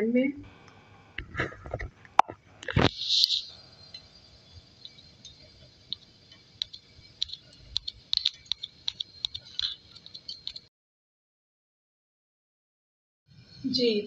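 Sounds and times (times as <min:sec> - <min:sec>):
ghee crackling in a pan: 0:00.6 - 0:10.7.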